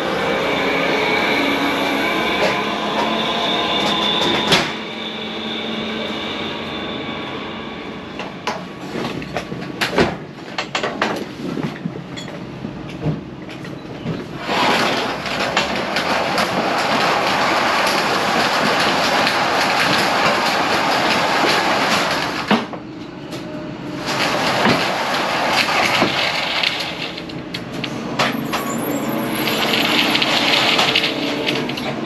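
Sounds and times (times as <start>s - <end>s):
forks and pallets rattling: 28.2s - 32.0s.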